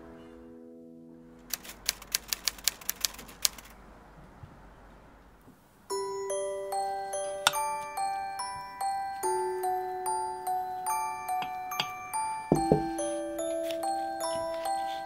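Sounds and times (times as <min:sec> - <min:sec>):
mallet percussion melody: 0:05.9 - 0:15.0
music chord: 0:05.9 - 0:15.0.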